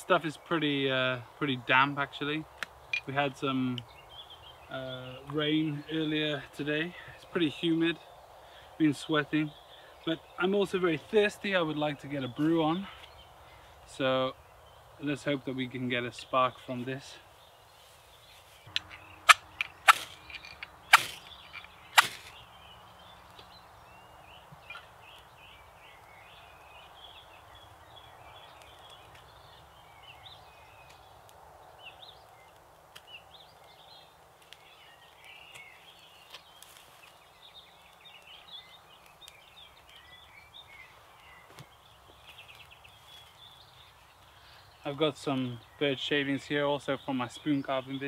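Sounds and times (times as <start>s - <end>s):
birds singing: 0.0s - 48.0s
fire steel scraping: 16.6s - 22.4s.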